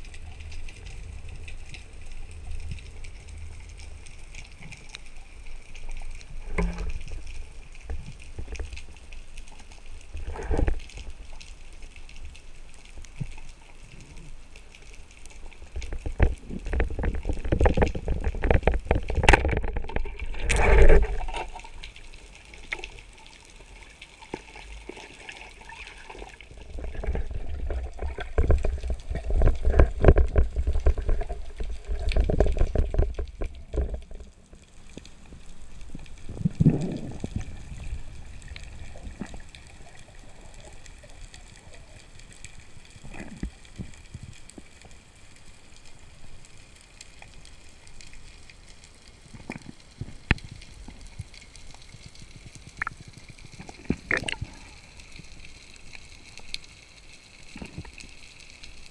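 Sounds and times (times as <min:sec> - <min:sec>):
underwater rushing bubbling water: 0:15.4 - 0:44.3, 0:49.4 - 0:56.4.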